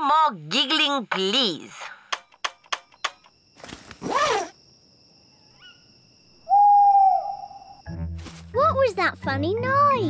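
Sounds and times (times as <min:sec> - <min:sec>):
cartoon owl hooting: 0:06.4 - 0:07.8.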